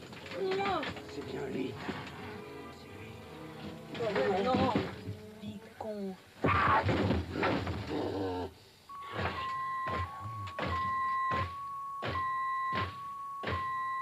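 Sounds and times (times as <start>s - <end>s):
heavy thuds: 3.5s - 5.3s, 6.4s - 8.0s, 9.1s - 13.9s.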